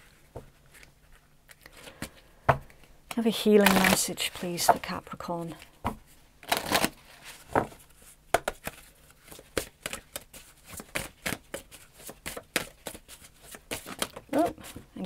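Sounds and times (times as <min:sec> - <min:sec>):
cards being shuffled: 0:03.4 - 0:05.0, 0:06.4 - 0:14.8.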